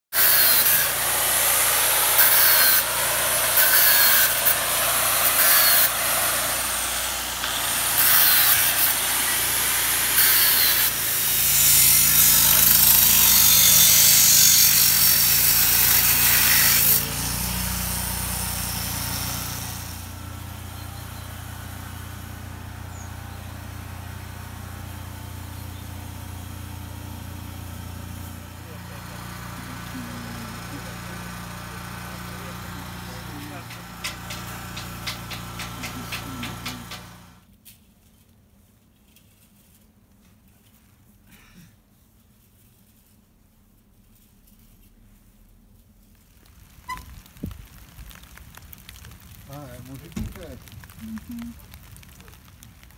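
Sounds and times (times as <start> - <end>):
steady hiss: 0.3 - 16.8
rain pattering: 46.0 - 52.9.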